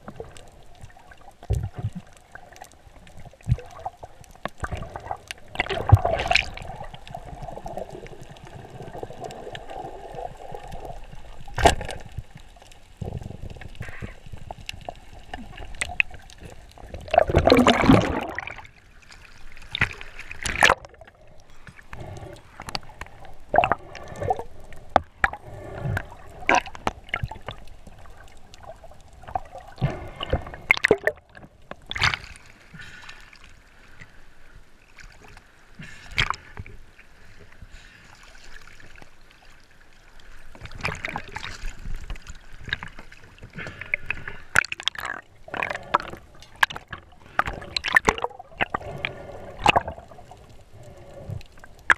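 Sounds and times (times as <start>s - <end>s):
water sloshing and gurgling: 0.0s - 51.9s
sharp splashes and knocks: 17.1s - 18.7s, 19.7s - 21.0s.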